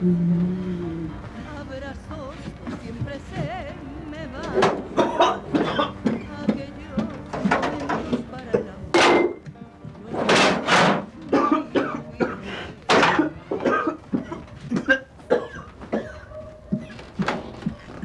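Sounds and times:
music: 0:00.0 - 0:18.0
person coughing harshly: 0:05.0 - 0:06.0, 0:11.3 - 0:16.4.

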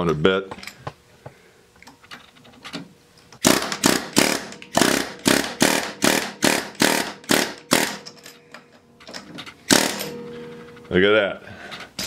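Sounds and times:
pneumatic air hammer bursts: 0:03.4 - 0:08.1, 0:09.7 - 0:10.2.

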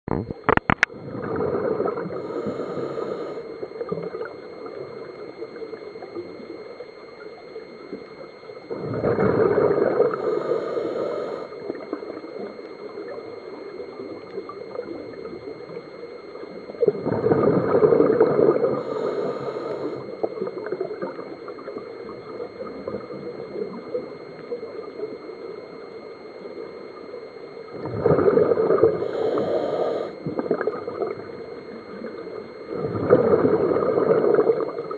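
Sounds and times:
exhaled bubbles gurgling underwater: 0:00.1 - 0:34.9
regulator hiss: 0:02.1 - 0:06.5, 0:09.7 - 0:16.9, 0:18.4 - 0:21.7, 0:28.6 - 0:32.5.

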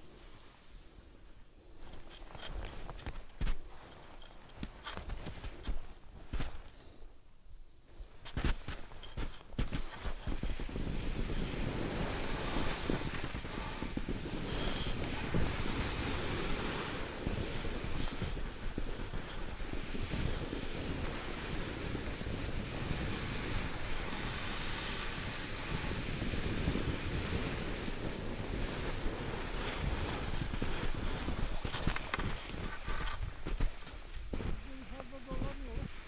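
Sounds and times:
wind buffeting microphone: 0:09.8 - 0:36.0.

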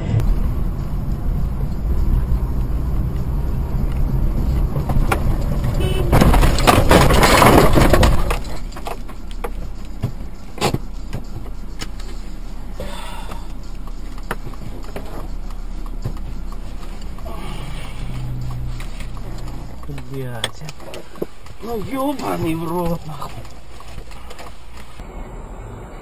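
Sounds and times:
car road and engine rumble: 0:00.0 - 0:26.0
loud car crash: 0:04.9 - 0:09.0.

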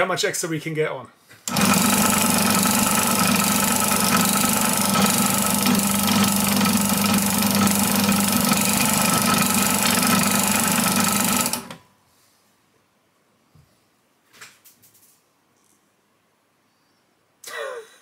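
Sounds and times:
drill press motor running: 0:01.5 - 0:11.8.

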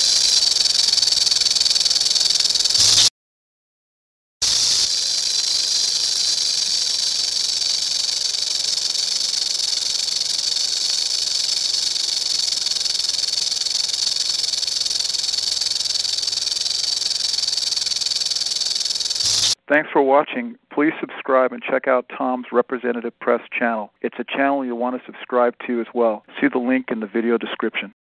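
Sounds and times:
rattlesnake rattle buzzing: 0:00.0 - 0:03.1, 0:04.4 - 0:19.6.

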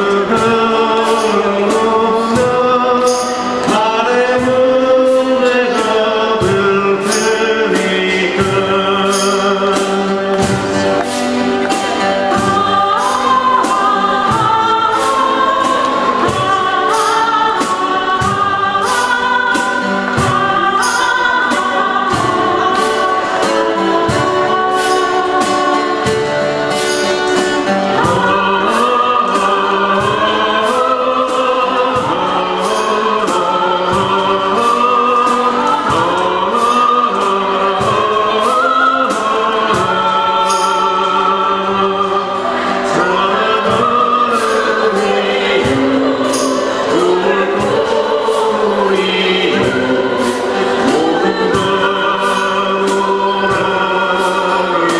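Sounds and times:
cajon beat: 0:00.0 - 0:54.9
man singing: 0:00.0 - 0:54.9
strummed acoustic guitars: 0:00.0 - 0:54.9
woman singing: 0:11.6 - 0:54.9.

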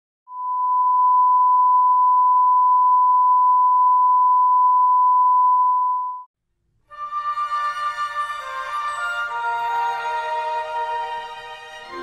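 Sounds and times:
steady test tone beep: 0:00.3 - 0:06.3.

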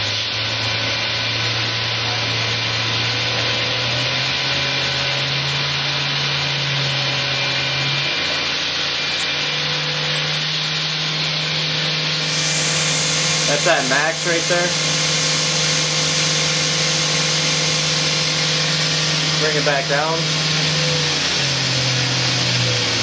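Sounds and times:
machine spindle hum: 0:00.3 - 0:23.0
steady hiss: 0:08.9 - 0:20.0.

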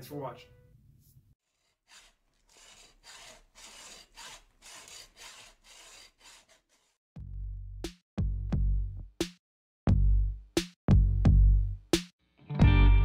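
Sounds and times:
hand tool rasping on wood: 0:01.4 - 0:07.0.

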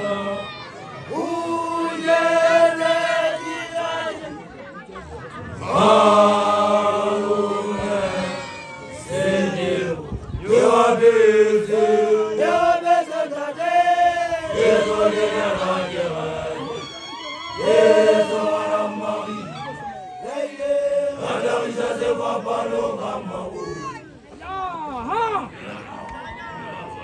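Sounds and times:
young men chanting together: 0:01.1 - 0:04.3, 0:05.6 - 0:16.8, 0:17.6 - 0:19.6, 0:20.2 - 0:23.6.

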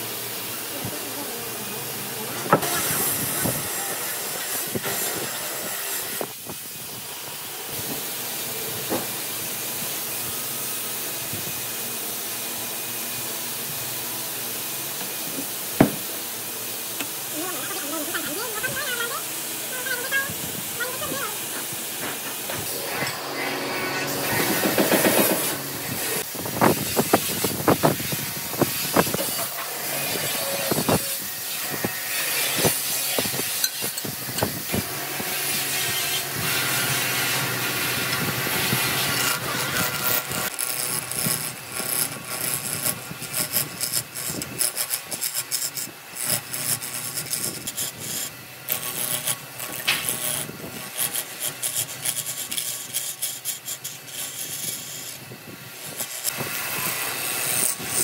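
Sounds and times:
sharp knocks: 0:15.8 - 0:16.0
tool rasping into hardwood: 0:17.4 - 0:29.6, 0:35.8 - 0:58.0.

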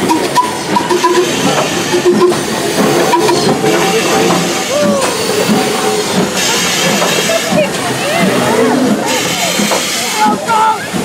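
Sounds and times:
steam hissing from locomotive: 0:00.0 - 0:11.0.

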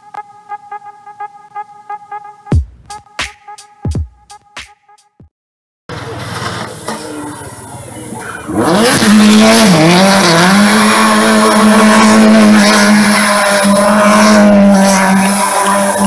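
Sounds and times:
rally car engine revving: 0:05.9 - 0:16.0.

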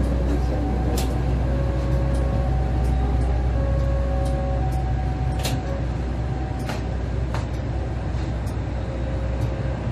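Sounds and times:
train engine idling: 0:00.0 - 0:09.9.

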